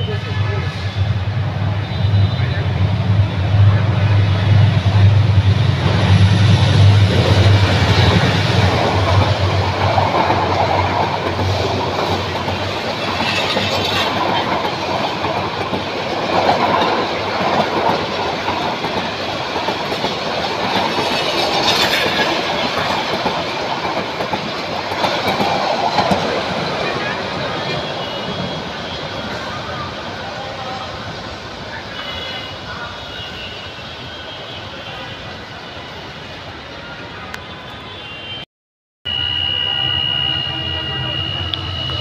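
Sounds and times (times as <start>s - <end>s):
diesel locomotive engine drone: 0.0s - 33.2s, 39.1s - 42.0s.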